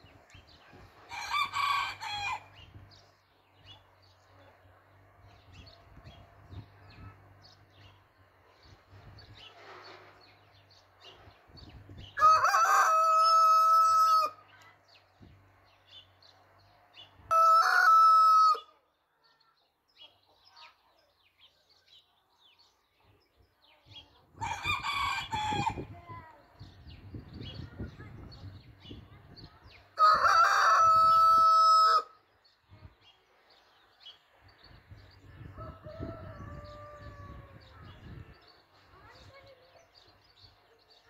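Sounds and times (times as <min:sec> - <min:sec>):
rooster crowing: 0:12.2 - 0:14.4, 0:17.3 - 0:18.7, 0:30.0 - 0:32.1, 0:35.6 - 0:37.6.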